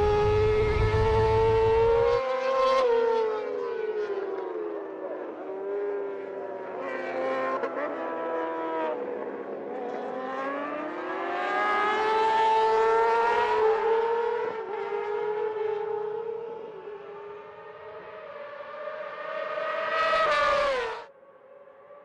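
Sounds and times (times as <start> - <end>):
racing motorcycle engine revving: 0.0 - 3.0.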